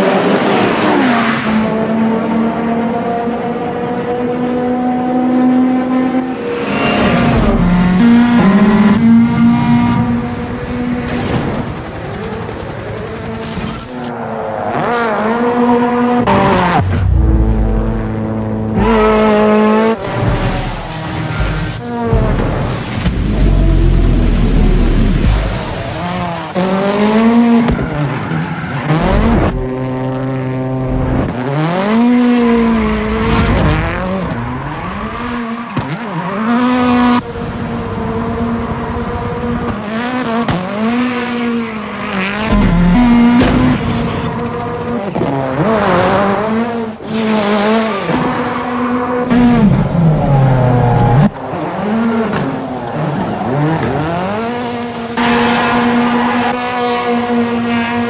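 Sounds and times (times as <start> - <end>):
car engine revving hard: 28.8 - 58.0.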